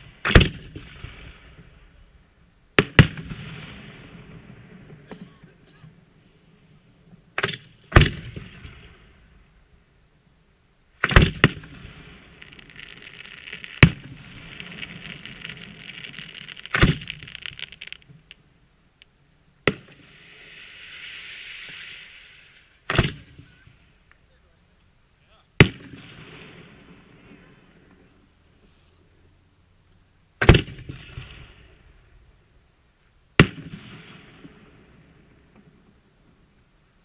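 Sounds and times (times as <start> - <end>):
firework hiss: 11.0 - 24.1
firework shells bursting: 11.0 - 24.2.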